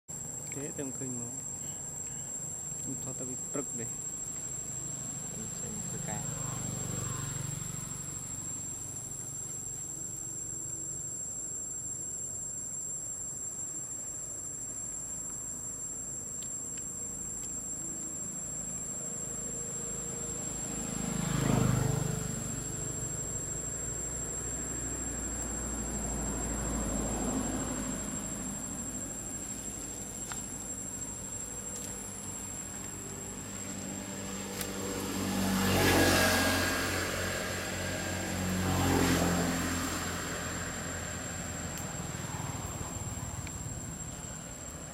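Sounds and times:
vehicle passing by: 4.6s - 9.4s, 19.7s - 30.4s, 31.2s - 44.9s.

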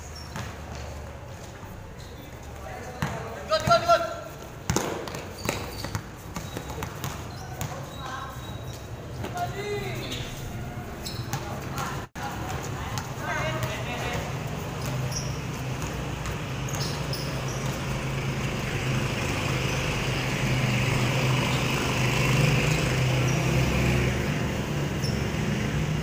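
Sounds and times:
engine rumbling: 14.3s - 26.0s.

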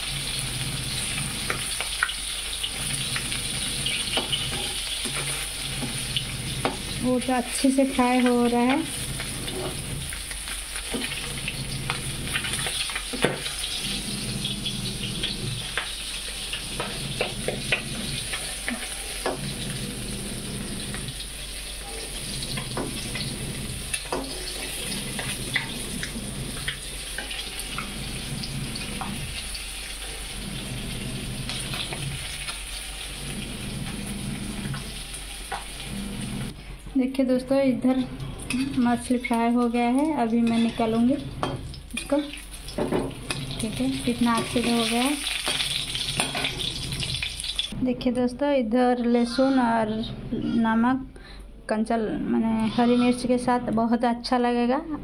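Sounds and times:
fish sizzling in hot oil: 0.0s - 36.6s, 38.4s - 47.8s
metal spatula scraping pan: 21.8s - 29.4s, 37.8s - 39.2s, 40.2s - 42.2s, 49.0s - 50.8s, 52.4s - 53.8s.

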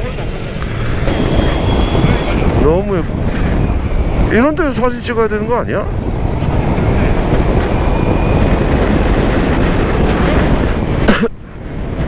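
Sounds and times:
motorcycle engine and tyre noise: 0.0s - 12.0s
wind rushing over microphone: 0.0s - 12.0s.

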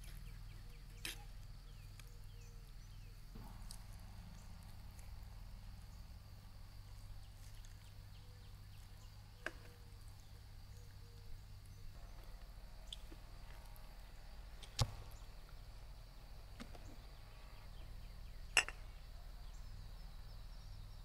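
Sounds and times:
low rumble: 3.1s - 19.1s.

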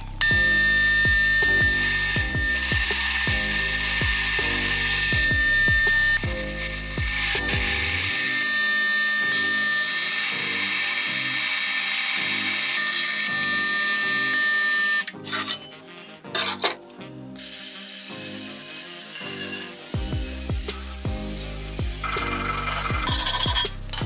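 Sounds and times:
drill press cutting steel: 0.0s - 15.6s
quiet background music: 0.0s - 24.0s.

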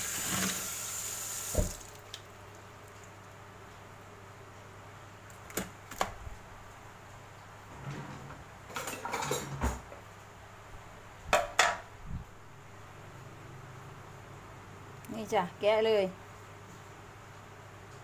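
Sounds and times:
knocks and clatter in metal sink: 8.7s - 9.9s.

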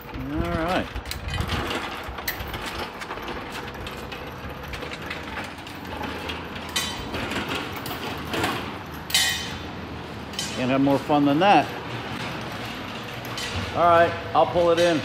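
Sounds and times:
hoist chains rattling: 0.0s - 9.6s.

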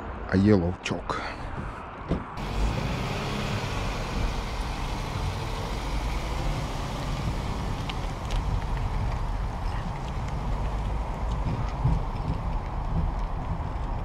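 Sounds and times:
car engine and tyres rumbling: 1.4s - 14.0s.

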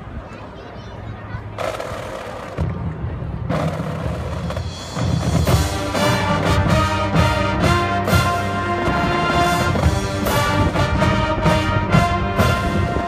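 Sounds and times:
low drums rumbling: 1.6s - 13.0s
brass sustained chords: 5.4s - 13.0s.

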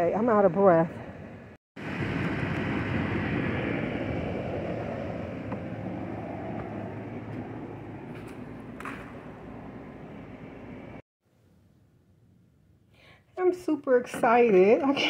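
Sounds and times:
vehicle rumbling past: 1.8s - 11.0s.

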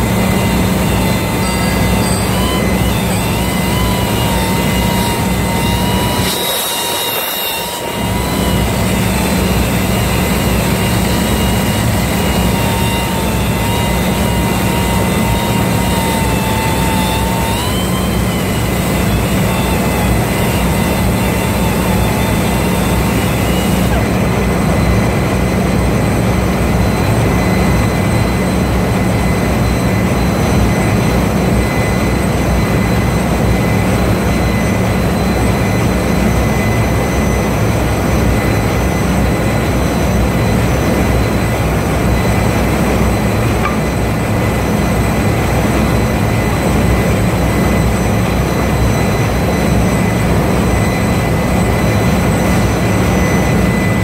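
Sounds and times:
machinery droning: 0.0s - 54.0s
thin wavering whine: 0.0s - 54.0s.

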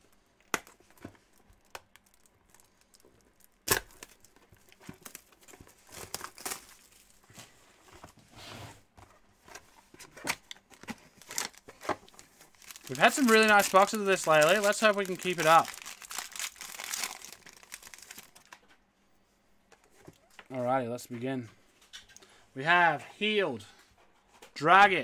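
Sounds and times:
plastic wrap and cardboard crinkling: 0.0s - 8.2s, 9.8s - 18.6s
wrapper rustling: 0.8s - 7.4s, 10.7s - 18.6s.

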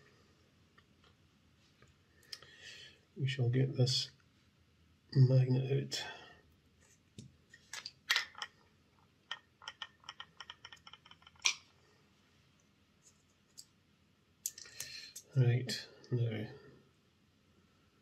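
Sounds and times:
small metal parts clicking: 9.3s - 11.6s.

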